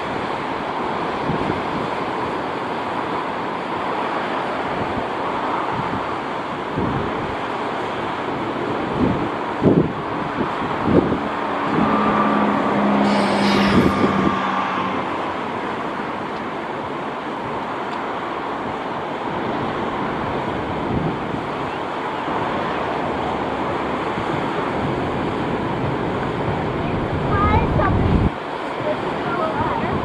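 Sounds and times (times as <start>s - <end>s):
surf: 0.0s - 30.0s
wind: 0.0s - 30.0s
vehicle engine passing: 10.3s - 17.5s.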